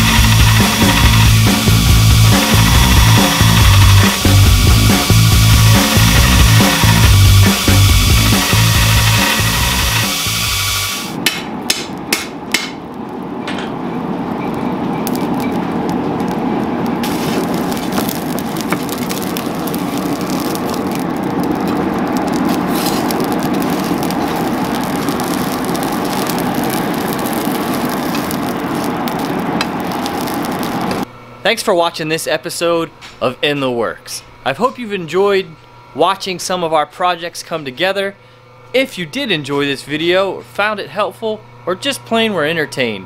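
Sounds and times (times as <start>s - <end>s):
crackling sparks: 0.0s - 31.1s
fire roaring: 0.0s - 31.1s
sharp knocks: 11.2s - 12.8s.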